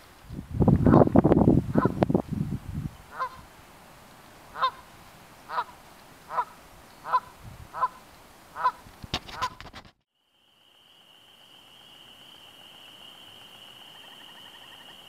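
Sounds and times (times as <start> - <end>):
goose honking: 3.1 - 3.4, 4.5 - 4.9, 5.5 - 9.6.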